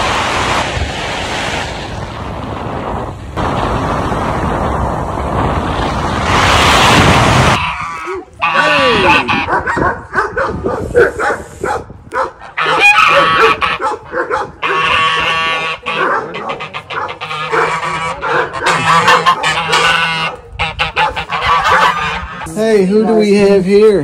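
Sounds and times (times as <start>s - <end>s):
geese honking loudly: 7.6s - 9.5s, 12.4s - 13.9s, 14.6s - 22.6s.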